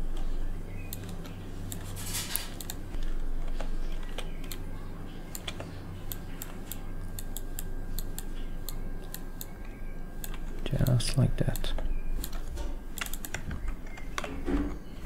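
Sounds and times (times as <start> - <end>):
low electrical hum: 0.0 - 15.0
mouse and keyboard clicks: 10.2 - 14.8.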